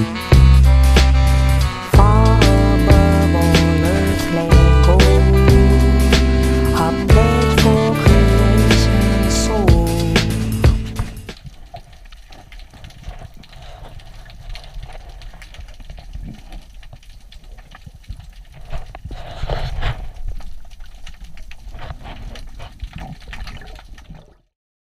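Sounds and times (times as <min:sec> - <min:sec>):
clicks and crackles: 0:11.0 - 0:24.4.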